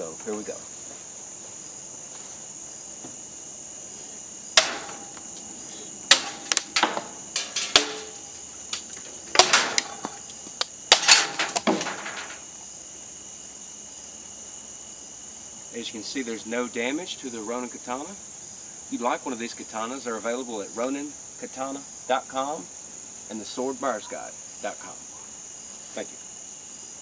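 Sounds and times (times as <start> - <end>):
blade cracking through plastic pipe: 4.6 - 5.2, 6.1 - 12.4.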